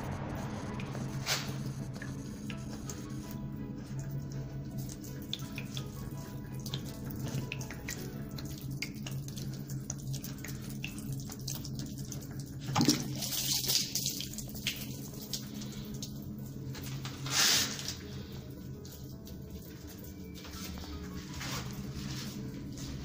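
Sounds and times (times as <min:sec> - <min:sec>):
water splashing and trickling: 0:03.7 - 0:23.0
sudden gush of water: 0:04.9 - 0:16.5.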